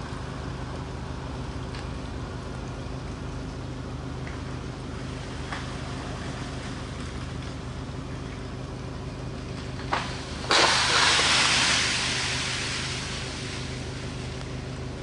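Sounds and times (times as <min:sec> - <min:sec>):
steady low hum: 0:00.0 - 0:15.0
branch crashing through branches: 0:09.8 - 0:14.4
ice-coated tree limb cracking: 0:09.8 - 0:14.4.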